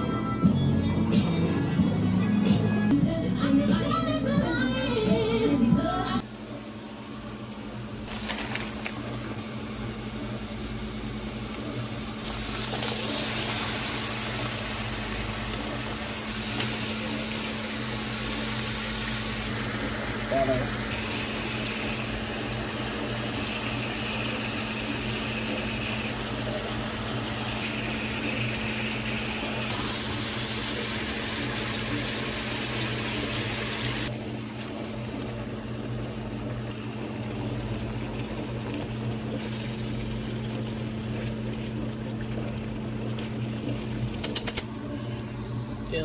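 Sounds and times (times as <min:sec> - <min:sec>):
food sizzling in a pan: 0:08.1 - 0:34.1.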